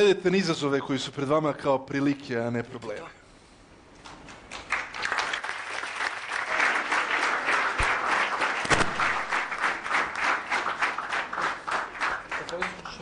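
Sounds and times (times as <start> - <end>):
audience applauding: 4.1 - 13.0.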